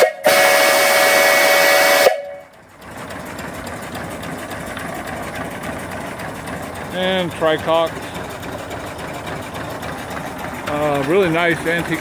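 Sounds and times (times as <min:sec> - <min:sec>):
steam whistle chord: 0:00.0 - 0:02.6
small steam engine running: 0:00.0 - 0:12.0.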